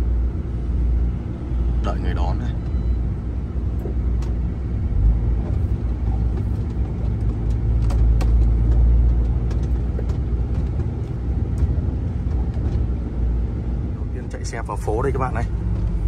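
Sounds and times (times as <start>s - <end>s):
truck engine and road noise: 0.0s - 16.0s
light clicks and rattles: 5.4s - 13.0s.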